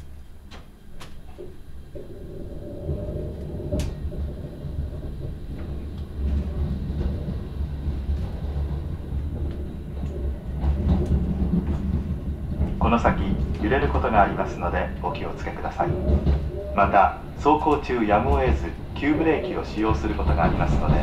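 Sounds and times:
train running rumble: 0:00.0 - 0:21.0
steady tone: 0:14.5 - 0:17.8.

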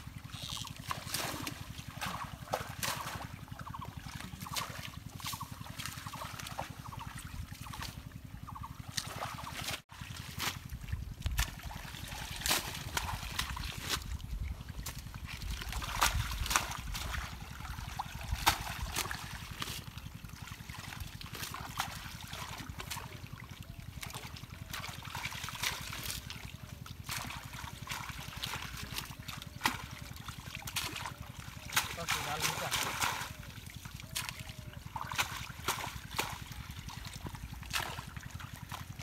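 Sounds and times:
pond water sloshing and splashing: 0:00.0 - 0:39.0.

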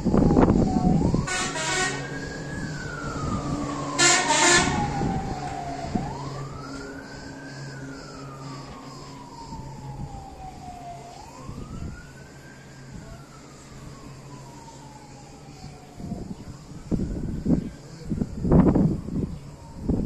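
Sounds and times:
engine hum: 0:00.0 - 0:20.0
siren wailing: 0:00.0 - 0:20.0
horn blast: 0:01.2 - 0:02.2, 0:03.9 - 0:05.2.

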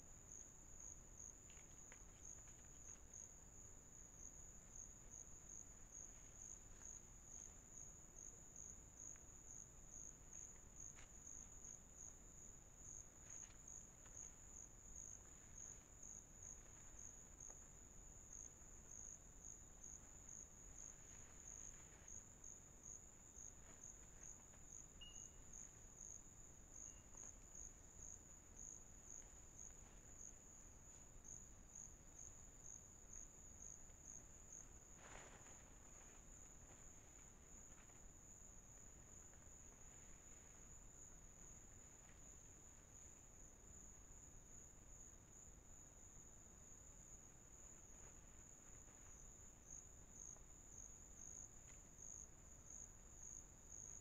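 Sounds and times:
insects chirring in pulsing trill: 0:00.1 - 0:54.0
faint ticks: 0:00.8 - 0:03.4.

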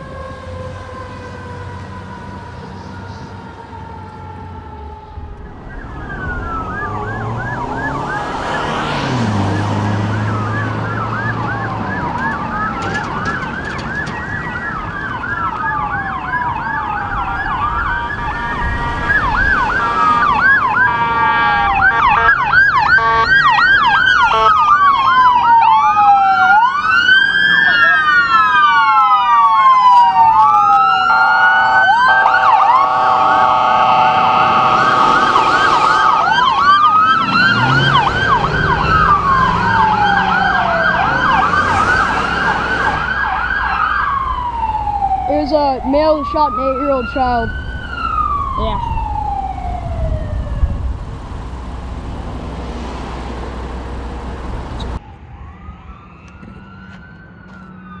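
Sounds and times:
chord-like siren blare: 0:00.0 - 0:58.0
emergency vehicle sirens wailing: 0:00.0 - 0:58.0.

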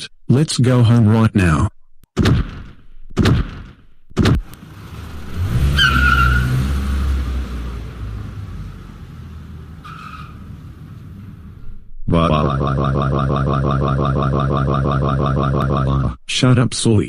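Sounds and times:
car engine starting and running: 0:04.2 - 0:16.1
tyre squeal: 0:05.7 - 0:06.6.

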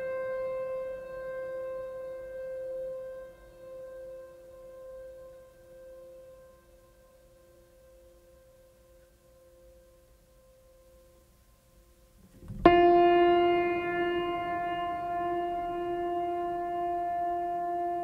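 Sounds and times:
soft held music tones: 0:00.0 - 0:18.0
loud sustained chord: 0:12.5 - 0:18.0.

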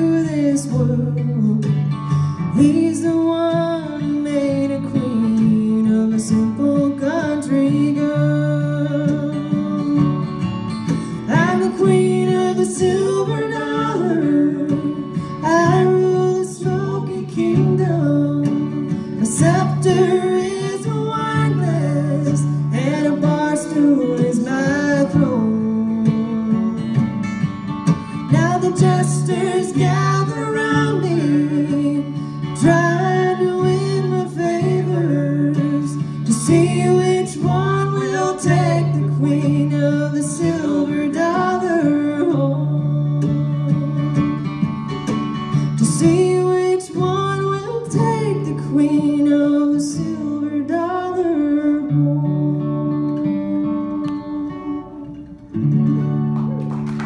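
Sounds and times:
acoustic guitar strumming: 0:00.0 - 0:57.0
mandolin: 0:00.0 - 0:57.0.

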